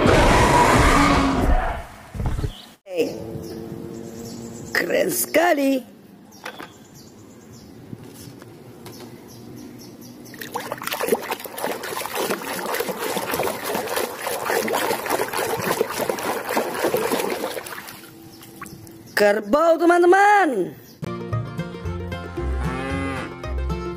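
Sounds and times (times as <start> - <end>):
water sloshing and splashing: 10.3 - 18.9.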